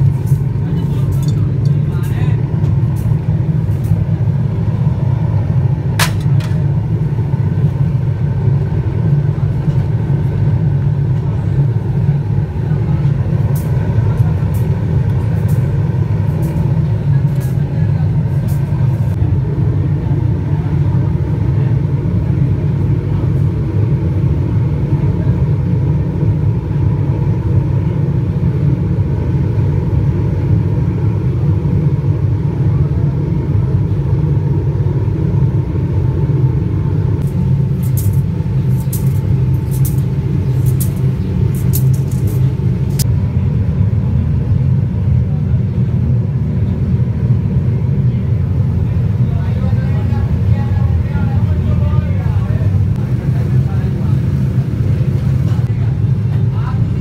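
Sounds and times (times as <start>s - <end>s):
furnace rumbling: 0.0s - 57.0s
sharp metallic click: 37.2s - 43.1s.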